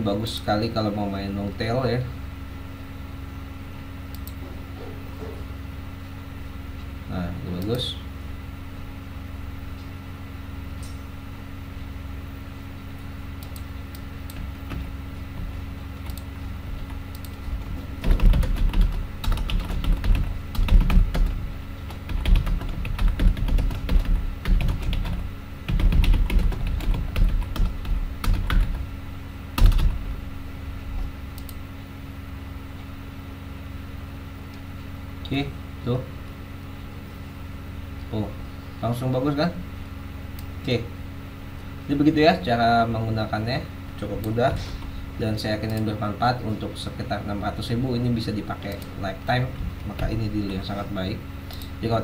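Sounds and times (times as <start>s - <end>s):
typing on computer keyboard: 18.0s - 28.8s, 29.6s - 30.0s.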